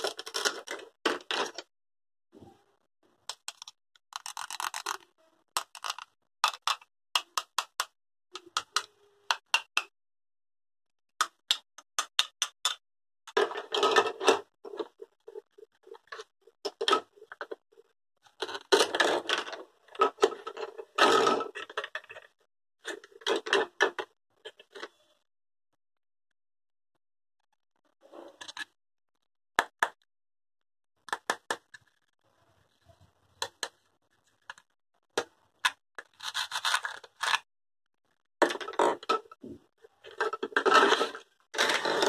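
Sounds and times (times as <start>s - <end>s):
plastic toys clicking and knocking: 0.0s - 1.7s, 3.2s - 9.9s, 11.2s - 25.1s, 28.4s - 28.8s, 29.6s - 30.0s, 31.0s - 32.2s, 33.4s - 37.5s, 38.1s - 42.0s
velcro rasping apart: 4.1s - 5.0s, 36.0s - 37.4s.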